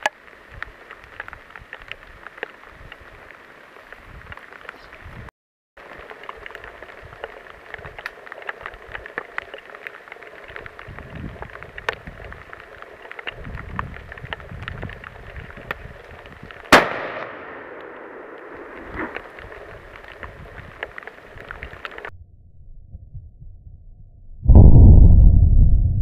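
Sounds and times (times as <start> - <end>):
wind rumble on microphone: 0.4 - 5.3, 5.9 - 9.5, 10.4 - 16.8, 18.6 - 26.0
faint scattered ticks: 5.8 - 16.6
rifle shot with echo: 16.7 - 19.2.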